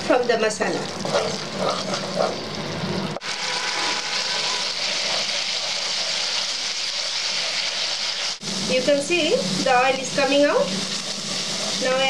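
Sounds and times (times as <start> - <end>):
paste sizzling in hot oil: 0.0 - 12.0
spatula stirring in pan: 0.8 - 2.5, 3.3 - 8.4, 9.5 - 12.0.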